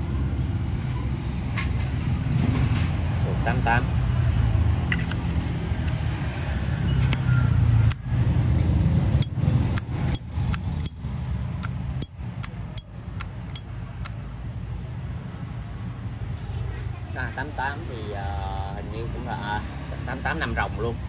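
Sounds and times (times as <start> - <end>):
lighter lid clicking open and shut: 4.9 - 5.2.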